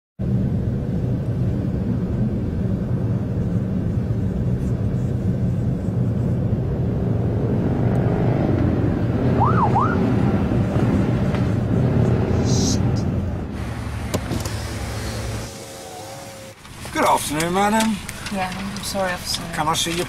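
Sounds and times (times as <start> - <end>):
car engine and road noise: 0.2 - 20.0
police siren whoop: 9.3 - 10.1.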